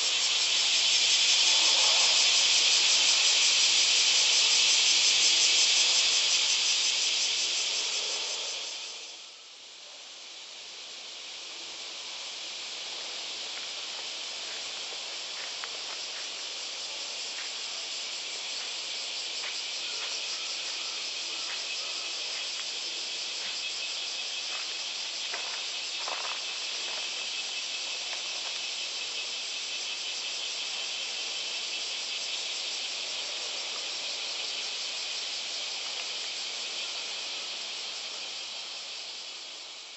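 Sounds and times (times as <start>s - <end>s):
cicadas singing: 0.0s - 39.9s.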